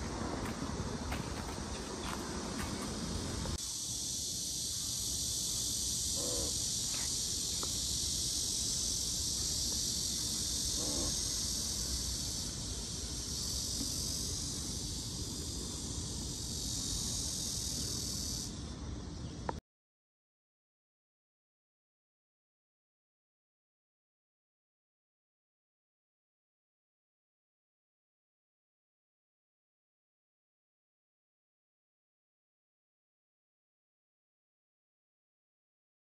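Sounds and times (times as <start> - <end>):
low outdoor rumble: 0.0 - 3.6
cicadas buzzing: 0.0 - 19.6.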